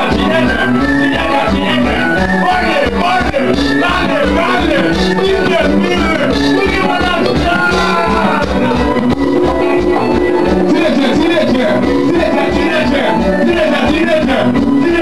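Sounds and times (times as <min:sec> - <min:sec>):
band playing carnival music: 0:00.0 - 0:15.0
person singing: 0:05.6 - 0:13.2.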